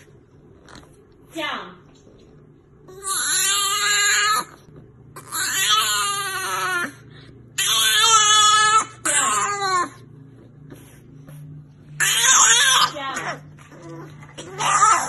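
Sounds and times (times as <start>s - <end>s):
puppy crying: 2.9s - 7.0s, 7.6s - 10.1s, 11.9s - 15.0s.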